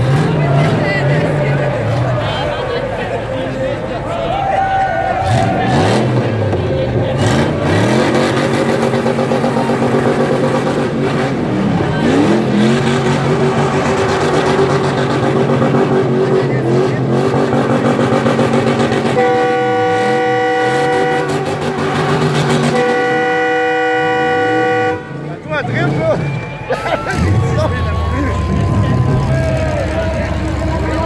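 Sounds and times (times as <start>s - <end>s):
car engine revving hard: 5.2s - 25.2s
car horn blaring: 18.8s - 27.4s.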